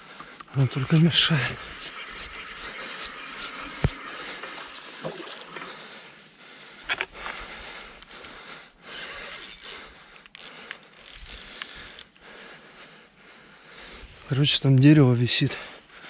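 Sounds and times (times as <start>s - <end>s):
fishing reel gears clicking: 9.0s - 12.2s.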